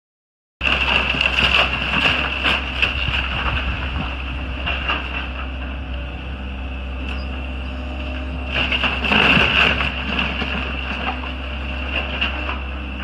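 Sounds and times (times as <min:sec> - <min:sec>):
falling debris: 0:00.6 - 0:05.8, 0:08.4 - 0:12.8
timber cracking and crunching: 0:00.6 - 0:06.1, 0:07.9 - 0:13.0
excavator diesel engine humming: 0:00.6 - 0:13.0.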